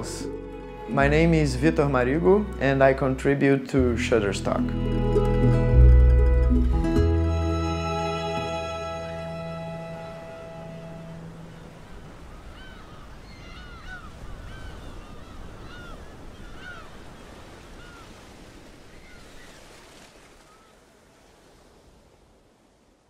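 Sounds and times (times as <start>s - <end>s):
sea surf washing on beach: 9.1s - 23.0s.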